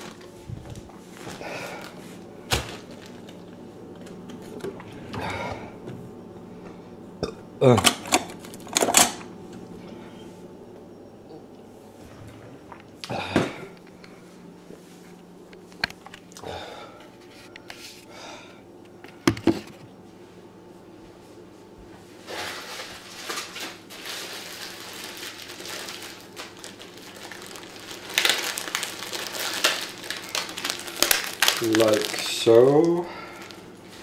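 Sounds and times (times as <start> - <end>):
packaging rustling and crinkling: 0.0 - 4.7, 22.2 - 34.0
faint low hum: 0.0 - 23.4.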